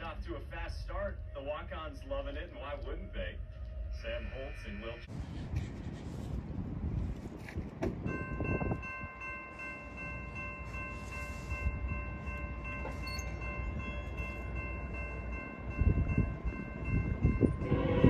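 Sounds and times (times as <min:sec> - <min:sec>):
train rumbling by: 0:00.0 - 0:18.0.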